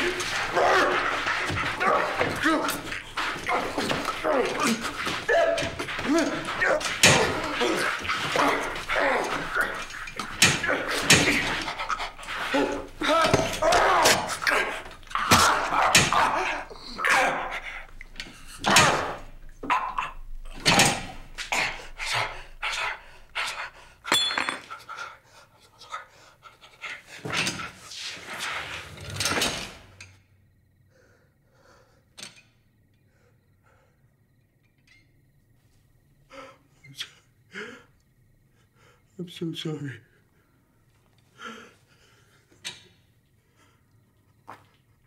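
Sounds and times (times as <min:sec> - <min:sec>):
men straining grunts: 0:00.0 - 0:23.0.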